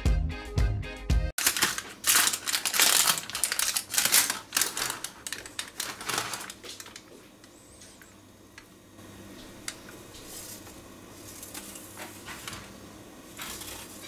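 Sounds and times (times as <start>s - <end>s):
background music: 0.0s - 1.3s
crackling and rustling handling: 1.4s - 8.2s, 9.3s - 14.0s.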